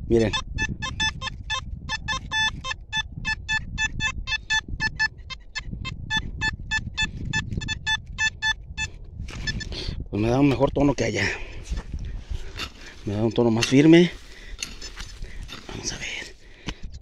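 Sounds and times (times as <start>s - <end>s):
metal detector beeps: 0.1s - 9.9s, 14.6s - 15.6s.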